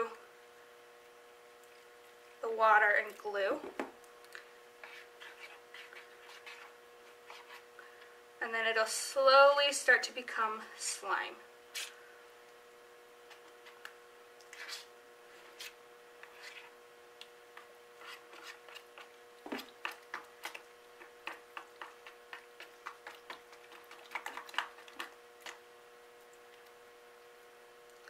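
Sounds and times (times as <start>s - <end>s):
faint steady hum: 0.0s - 28.0s
plastic spoon stirring slime: 4.3s - 7.7s, 13.2s - 26.8s.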